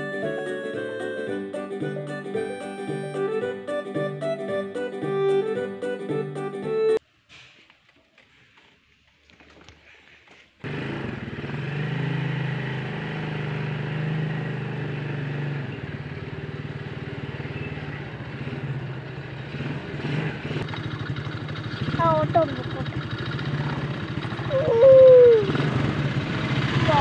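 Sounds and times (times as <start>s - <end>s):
atv engine running: 10.6s - 27.0s.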